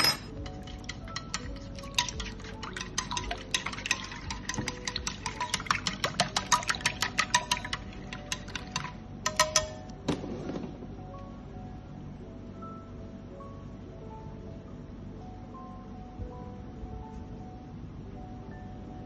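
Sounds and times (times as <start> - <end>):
chopsticks clinking against dish: 0.0 - 9.8.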